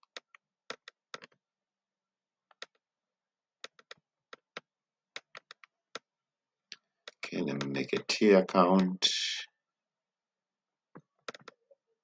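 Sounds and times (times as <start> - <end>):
mouse and keyboard clicks: 11.2 - 11.6.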